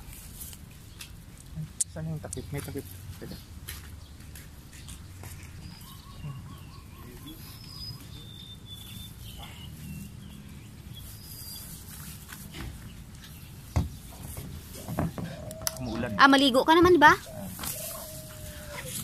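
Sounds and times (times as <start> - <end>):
high bird chirps: 5.6 - 12.1.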